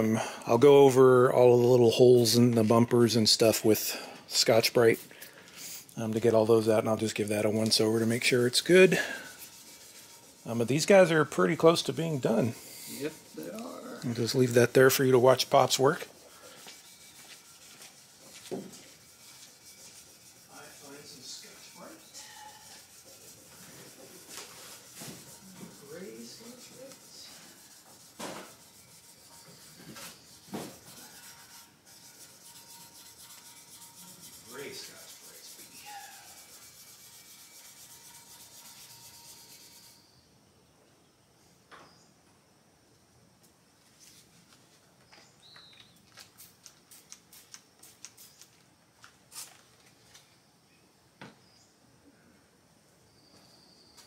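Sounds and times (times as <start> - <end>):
sanding block rubbing: 6.3 - 40.0.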